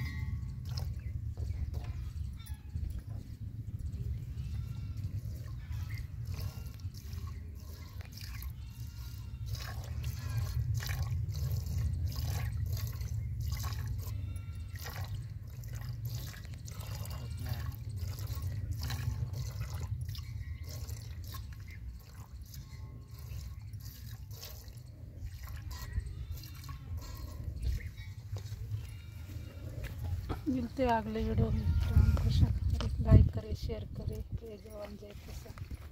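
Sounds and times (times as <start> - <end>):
milk squirting into pail: 5.0 - 27.8.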